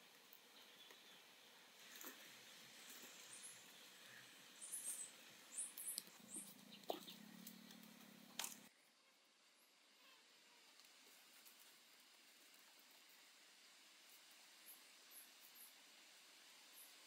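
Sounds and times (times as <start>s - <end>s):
faint low hum: 0.0s - 17.0s
bamboo strips clicking: 6.8s - 8.7s.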